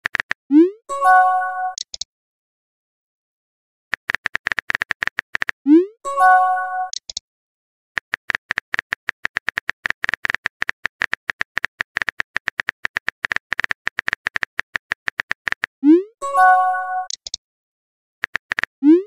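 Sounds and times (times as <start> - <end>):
multi-tone chime: 0.9 - 1.8, 6.1 - 6.9, 16.2 - 17.1
keyboard typing clicks: 1.6 - 2.1, 3.9 - 5.6, 6.8 - 7.2, 8.0 - 15.7, 16.9 - 17.4, 18.2 - 19.0.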